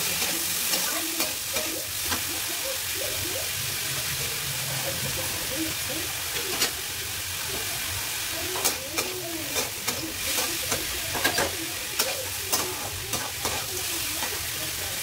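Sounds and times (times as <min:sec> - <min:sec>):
food sizzling in a pan: 0:00.0 - 0:15.0
metal spatula scraping a pan: 0:08.6 - 0:14.4.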